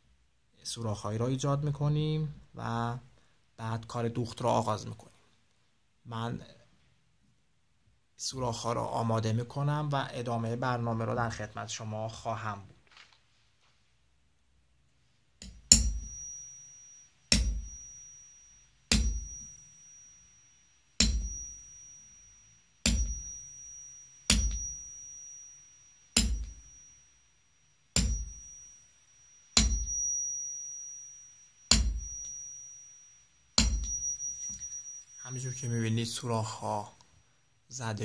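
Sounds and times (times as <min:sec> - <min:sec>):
hammer striking metal punch: 0:15.4 - 0:16.3, 0:17.3 - 0:17.8, 0:18.9 - 0:19.6, 0:21.0 - 0:21.7, 0:22.8 - 0:23.6, 0:24.3 - 0:24.9, 0:26.2 - 0:26.7, 0:28.0 - 0:28.6, 0:29.6 - 0:30.2, 0:31.7 - 0:32.4, 0:33.6 - 0:34.7.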